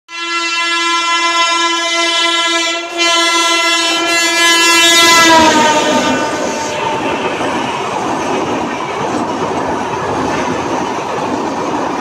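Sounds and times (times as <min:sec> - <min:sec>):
locomotive horn blasts: 0:00.1 - 0:07.4
train rumble: 0:01.2 - 0:12.0.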